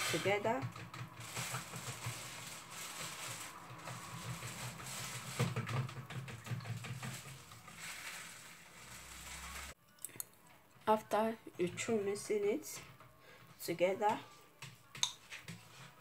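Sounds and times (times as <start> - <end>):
spoon scraping plastic bowl: 0.0 - 9.7.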